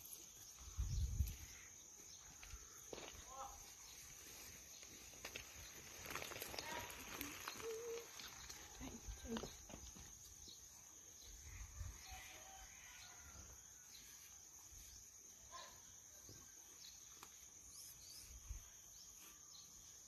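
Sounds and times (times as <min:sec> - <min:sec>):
wind rumble on microphone: 0:00.7 - 0:01.5.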